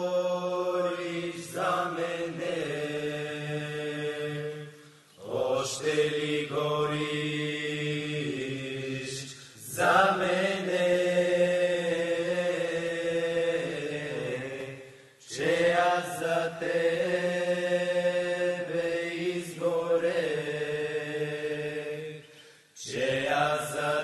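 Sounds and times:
men singing folk song: 0:00.0 - 0:22.2, 0:22.8 - 0:24.0.

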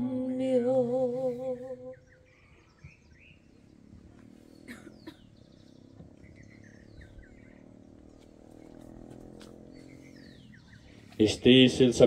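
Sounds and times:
faint bird chirps: 0:00.4 - 0:11.3
quick sweeping bird calls: 0:01.9 - 0:11.3.

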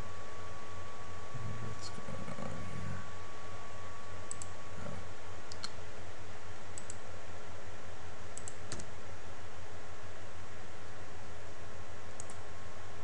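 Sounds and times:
steady low hum: 0:00.0 - 0:13.0
mouse and keyboard clicks: 0:08.4 - 0:08.9.

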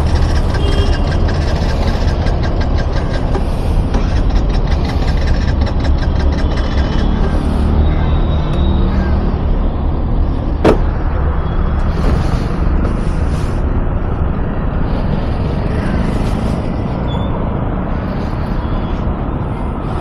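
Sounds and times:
scooter engine running: 0:00.0 - 0:09.1.

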